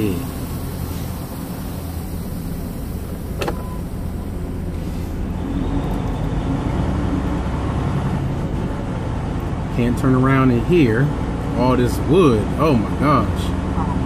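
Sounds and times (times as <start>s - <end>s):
truck diesel engine running: 0.0s - 14.0s.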